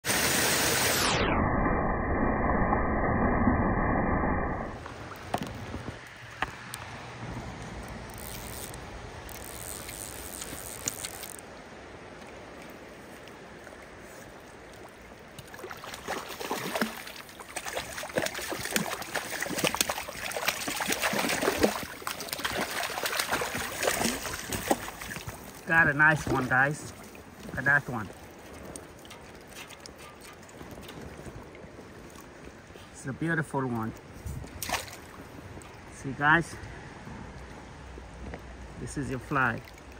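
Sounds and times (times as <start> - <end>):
river water running: 4.6 - 39.9
fish splashing at surface: 15.4 - 27.2, 34.6 - 35.2.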